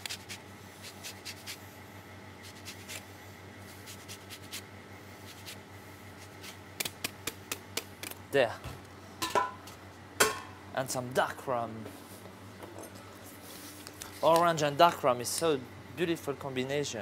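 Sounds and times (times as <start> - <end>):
orange peel scratching on grater: 0.0 - 1.6, 2.4 - 5.6.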